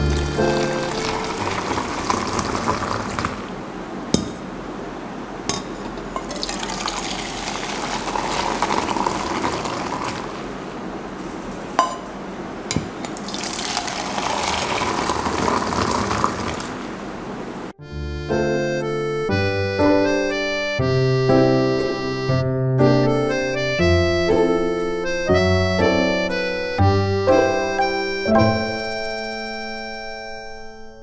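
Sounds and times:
tea pouring and splashing into mug: 0.4s - 3.5s, 6.2s - 10.4s, 13.0s - 16.8s
steel mugs clinking: 5.5s - 10.3s, 11.8s - 12.1s.

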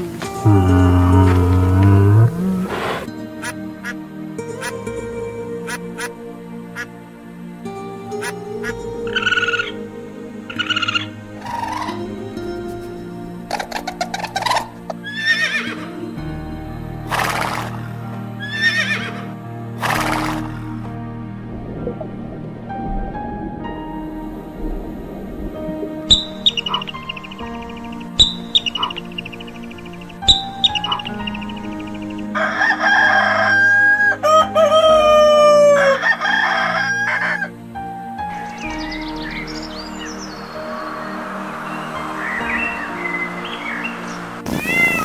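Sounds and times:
soft background music: 0.0s - 45.0s
horse whinnying: 0.4s - 3.1s
rooster crowing: 32.4s - 37.5s.

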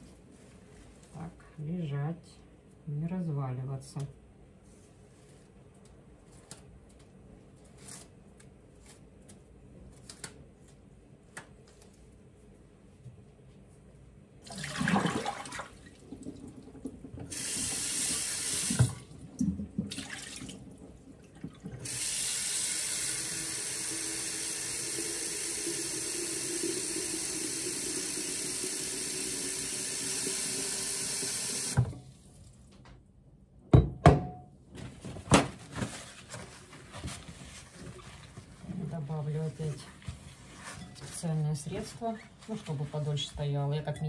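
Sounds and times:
water splashing in sink: 14.4s - 31.9s
paper towel rustling: 34.7s - 43.6s.

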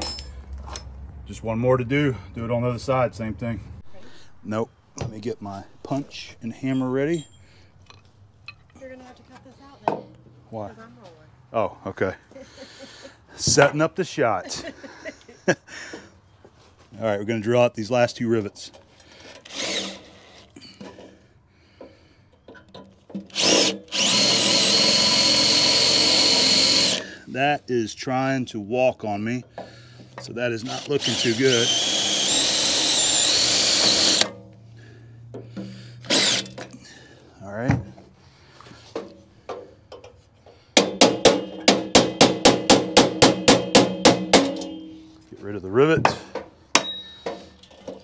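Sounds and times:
cordless drill drilling: 19.3s - 20.4s, 23.3s - 27.1s, 30.6s - 34.3s, 36.0s - 36.6s
hammer striking metal punch: 40.8s - 45.2s, 46.8s - 47.4s.

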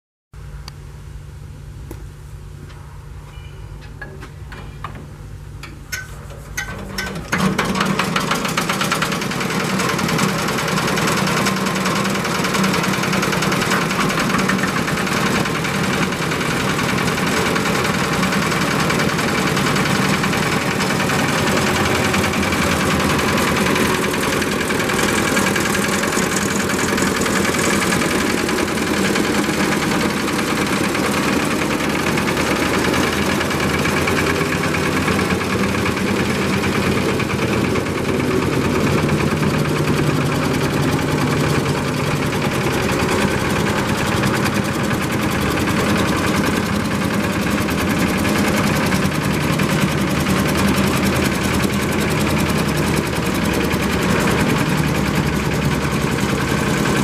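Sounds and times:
steady hum: 0.4s - 6.8s
diesel engine running: 6.0s - 57.0s.

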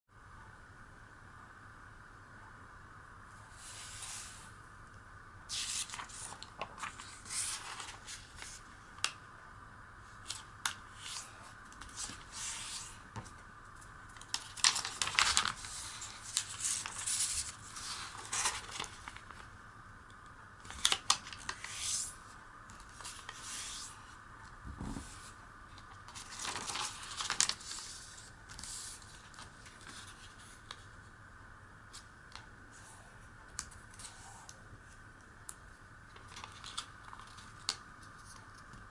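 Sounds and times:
paper rustling and creasing: 5.5s - 9.2s, 10.2s - 19.5s, 20.6s - 30.9s, 36.1s - 38.9s.

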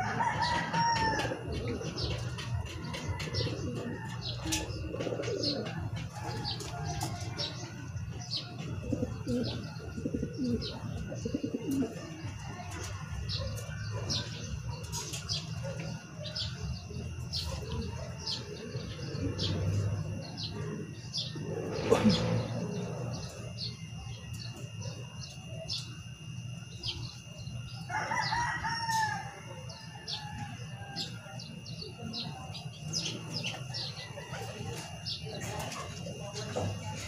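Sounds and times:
rooster crowing: 0.0s - 8.4s, 27.6s - 31.7s, 33.4s - 35.2s
steady low hum: 0.0s - 37.0s.

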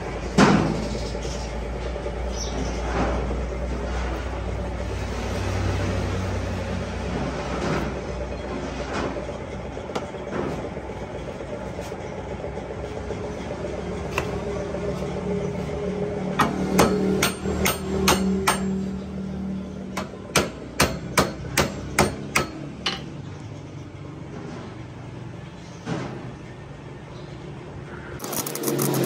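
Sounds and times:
hammer striking steel: 16.4s - 19.0s, 20.0s - 23.2s.

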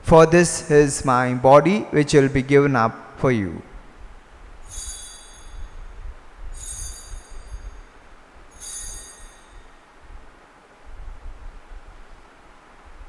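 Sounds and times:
altar bell chiming: 4.7s - 6.0s, 6.6s - 10.0s.

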